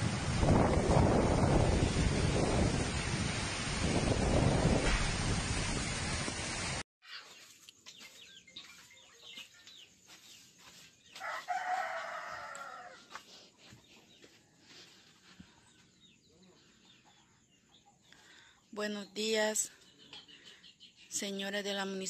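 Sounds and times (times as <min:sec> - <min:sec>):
wind and rain on microphone: 0:00.0 - 0:06.8
rooster crowing: 0:11.2 - 0:13.2.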